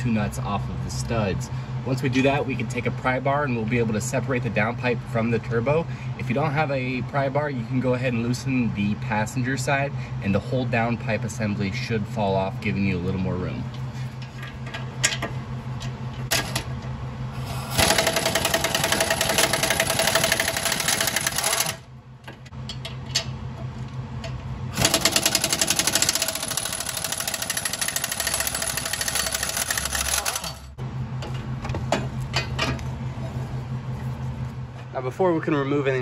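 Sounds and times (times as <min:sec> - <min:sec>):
steady low hum: 0:00.0 - 0:36.0
impact wrench hammering: 0:17.7 - 0:21.8, 0:24.8 - 0:30.7.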